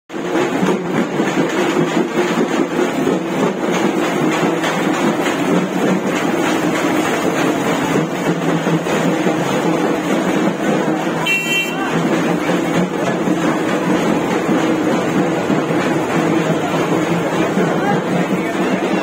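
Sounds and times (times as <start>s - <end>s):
engine running with dense rumble: 0.2s - 19.0s.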